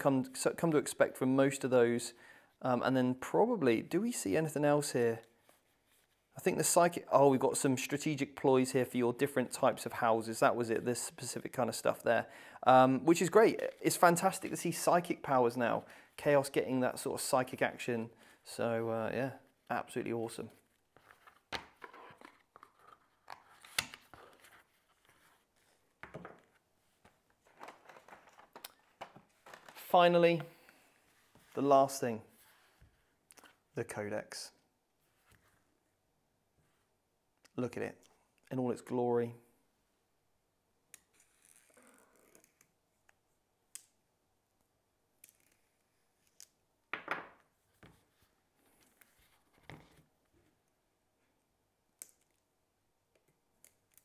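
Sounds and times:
cards tapping and rustling: 26.0 - 30.6.

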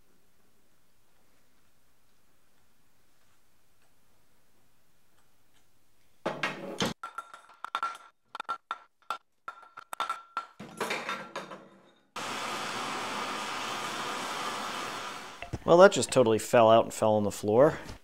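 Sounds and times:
metal knocks and clinks: 7.0 - 12.1.

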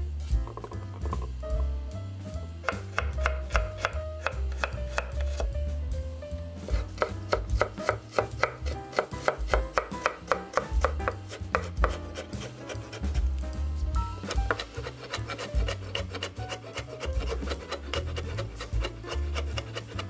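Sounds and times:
knife tapping on wooden board: 2.7 - 5.5, 6.7 - 13.0, 14.2 - 20.0.

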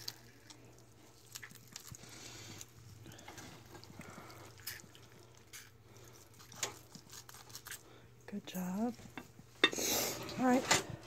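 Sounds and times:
knife crunching through turkey: 0.0 - 8.0.

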